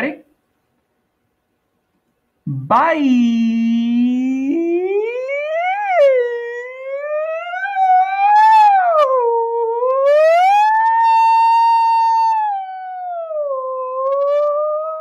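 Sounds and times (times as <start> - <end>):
man drawing out a word: 2.5 - 3.7.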